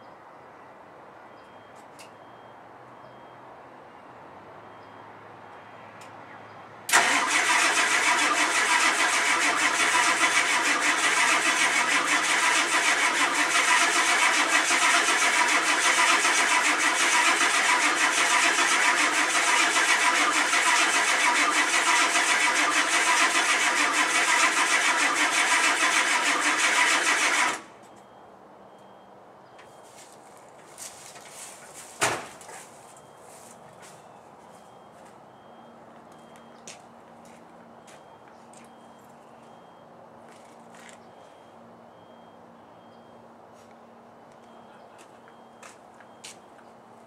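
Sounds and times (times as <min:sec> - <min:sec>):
starter cranking diesel engine: 0:06.9 - 0:27.7.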